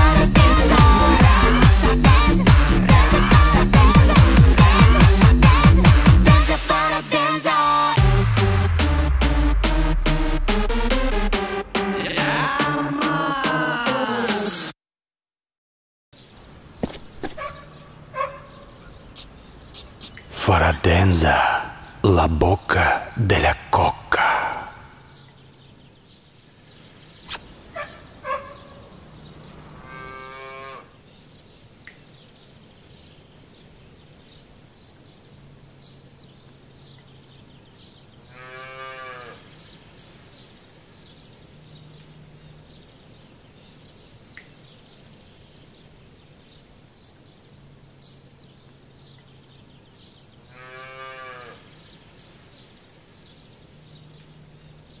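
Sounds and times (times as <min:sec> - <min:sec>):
drawn-out animal calls: 0:00.0 - 0:05.8, 0:17.4 - 0:20.3, 0:27.7 - 0:28.8
faint fast chirping: 0:17.1 - 0:20.4.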